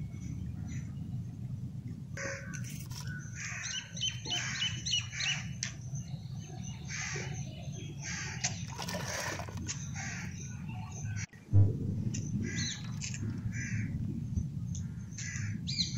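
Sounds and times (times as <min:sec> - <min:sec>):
birds chirping: 0:00.0 - 0:11.3, 0:12.0 - 0:15.9
low background rumble: 0:00.0 - 0:15.9
crows cawing: 0:02.2 - 0:05.4, 0:10.0 - 0:10.4, 0:12.4 - 0:14.0, 0:14.8 - 0:15.6.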